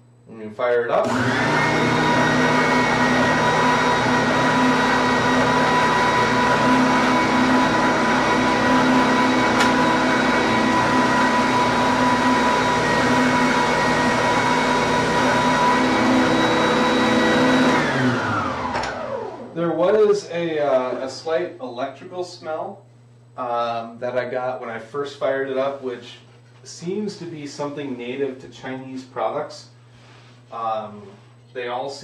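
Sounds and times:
sander motor hum and whine: 1.0 - 19.6.

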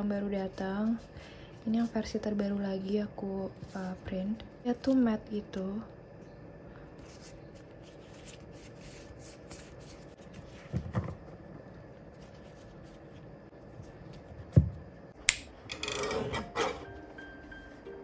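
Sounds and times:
cards rubbing on cards: 7.0 - 10.6.

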